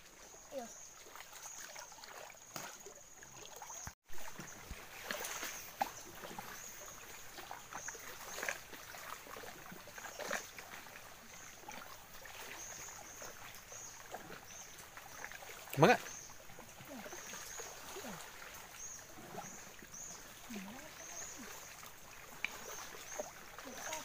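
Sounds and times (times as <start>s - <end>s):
shallow water sloshing: 0.0s - 24.0s
small splashes and clicks: 0.9s - 24.0s.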